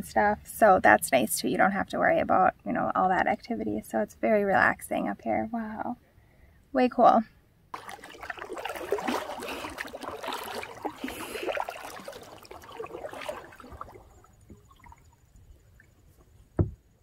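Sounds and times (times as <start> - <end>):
water rippling along hull: 7.7 - 17.0
paddle splashing water: 7.8 - 16.8.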